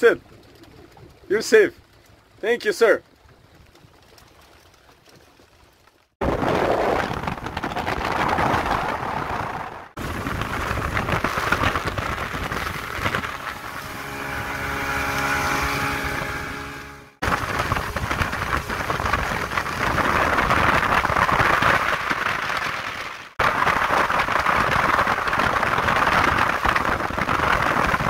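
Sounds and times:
water rushing past hull: 0:00.0 - 0:28.0
wind rushing over microphone: 0:06.2 - 0:28.0
outboard motor running: 0:10.0 - 0:21.9.

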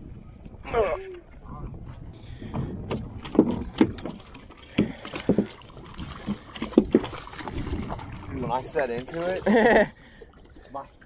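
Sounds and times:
hollow knocks on fiberglass boat: 0:02.4 - 0:07.4.

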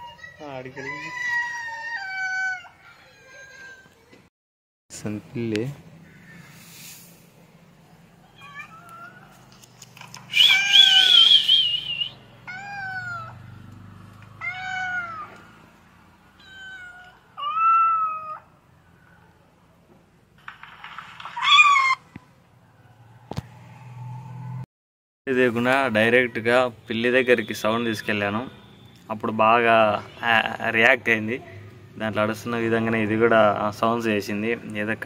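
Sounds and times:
cat meowing: 0:08.3 - 0:09.3, 0:12.5 - 0:13.4, 0:14.4 - 0:15.4, 0:16.4 - 0:18.5.

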